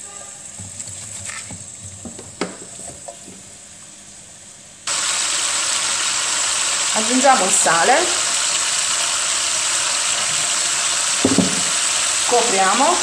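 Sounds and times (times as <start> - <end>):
onions sizzling in oil: 4.9 - 13.0
onions knocking into a pan: 11.1 - 12.0.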